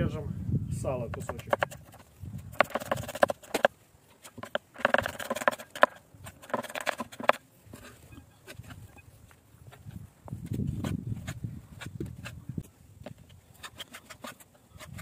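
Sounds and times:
knife chopping on wooden board: 1.2s - 2.0s, 2.6s - 3.7s, 4.4s - 7.4s.

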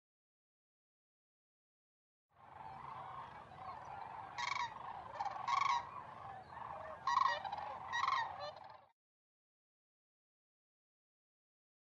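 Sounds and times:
cranes calling: 2.4s - 8.9s.

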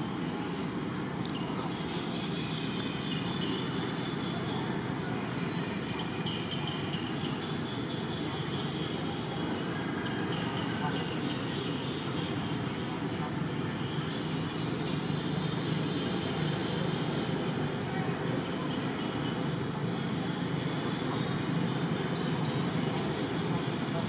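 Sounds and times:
hiss: 1.6s - 2.1s.

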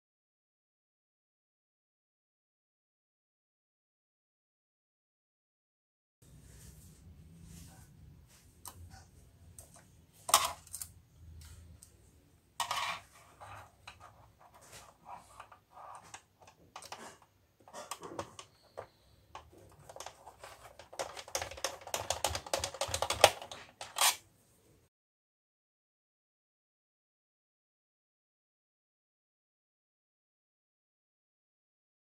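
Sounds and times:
plastic clatter: 13.8s - 24.2s
plastic printer parts clicking: 15.4s - 24.2s.

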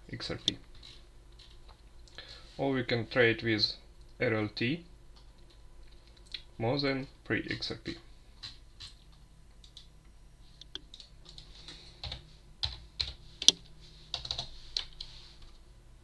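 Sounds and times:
typing on keyboard: 10.8s - 15.1s.

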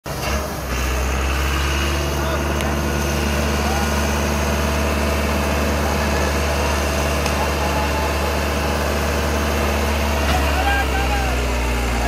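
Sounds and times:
tractor diesel engine droning: 0.0s - 12.0s.

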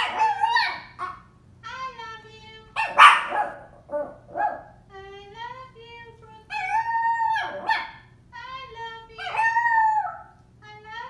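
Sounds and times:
dog howling: 0.0s - 1.1s, 6.5s - 8.0s, 9.2s - 10.4s.

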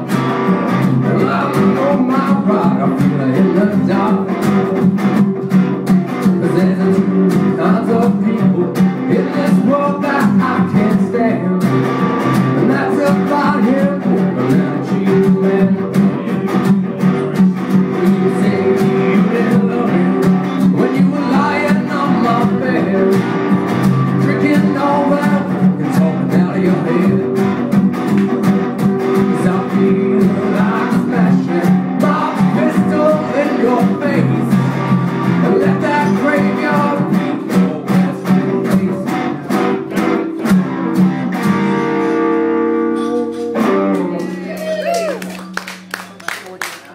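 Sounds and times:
guitars strumming blues rhythm: 0.0s - 46.9s.

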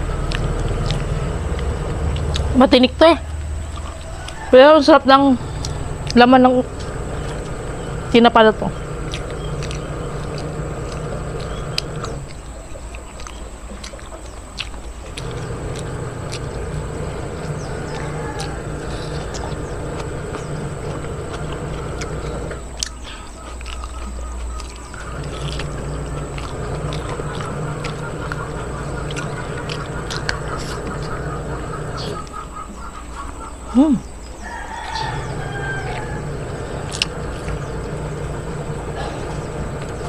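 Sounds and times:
chickens calling: 0.0s - 40.0s
steady low hum: 0.0s - 40.0s
rooster crowing: 3.3s - 12.3s, 15.2s - 22.7s, 25.0s - 32.6s, 34.4s - 40.0s.

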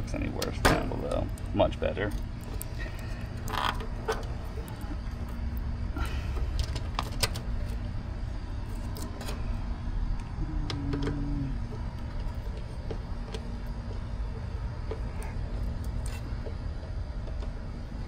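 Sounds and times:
steady low rumble: 0.0s - 18.0s
brief low tone: 10.4s - 11.6s.

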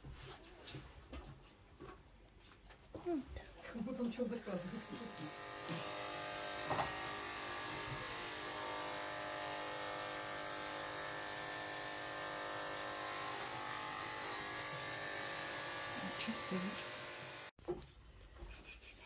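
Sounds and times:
electric clippers buzzing: 4.4s - 17.5s.

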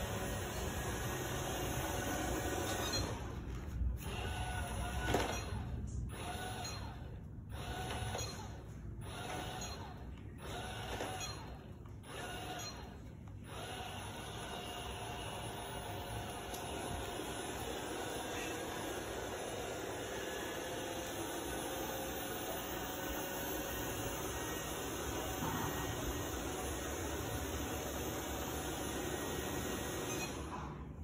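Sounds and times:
robot vacuum whirring: 9.1s - 30.6s.

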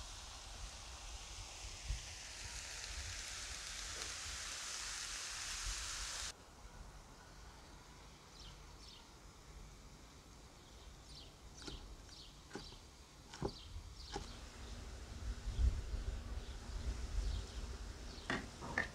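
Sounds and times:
vegetables sizzling in a pan: 0.0s - 6.4s.

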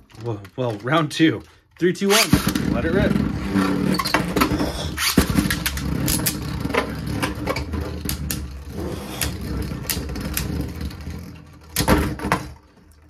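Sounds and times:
spinning tops whirring: 2.0s - 11.6s.

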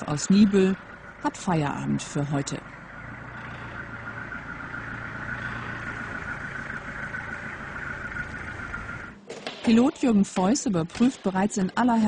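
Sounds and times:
high-pitched machine whine: 0.0s - 9.2s
low machine hum: 0.0s - 12.0s.

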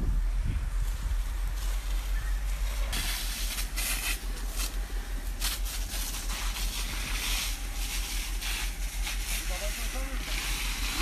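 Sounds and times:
fire hissing and crackling: 0.0s - 11.0s
low rumble: 0.0s - 11.0s.

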